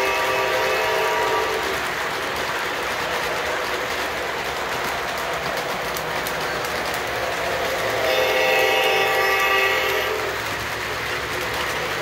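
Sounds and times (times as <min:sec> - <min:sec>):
train horn: 0:00.0 - 0:01.8, 0:07.8 - 0:10.4
model train wheels clattering: 0:00.0 - 0:12.0.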